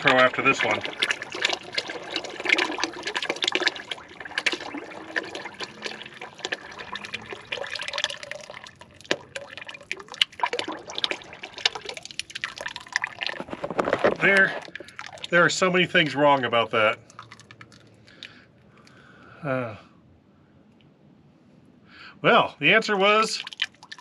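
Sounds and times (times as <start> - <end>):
oil stream splashing into pan: 0.0 - 15.6, 17.0 - 18.3, 23.2 - 24.0.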